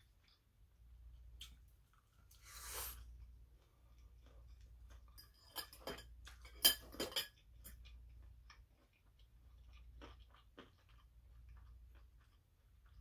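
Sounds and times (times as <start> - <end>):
soft chewing: 0.0 - 13.0
metal fork clinking on ceramic bowl: 5.1 - 7.8.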